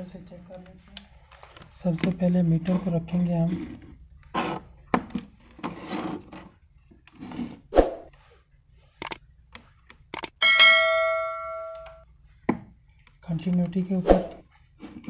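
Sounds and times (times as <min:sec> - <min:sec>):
mouse clicks: 0:10.2 - 0:10.4
bright bell ding: 0:10.4 - 0:12.0.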